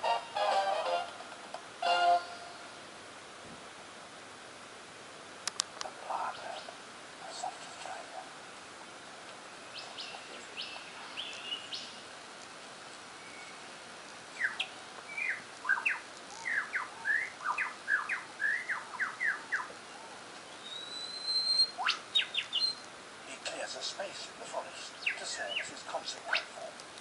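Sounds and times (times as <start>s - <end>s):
lyrebird singing through speakers: 9.7s - 12.0s, 14.4s - 22.8s, 24.8s - 26.7s.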